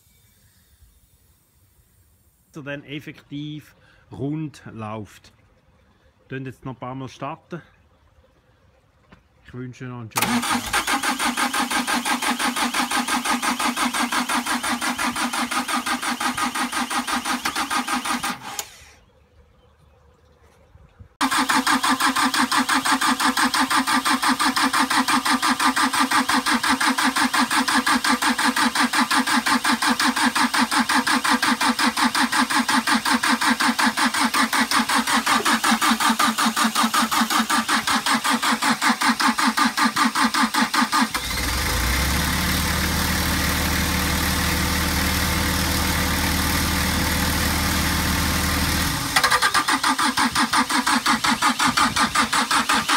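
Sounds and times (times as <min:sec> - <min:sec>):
small diesel engine pulsing: 0:10.2 - 0:19.0, 0:21.2 - 0:52.9.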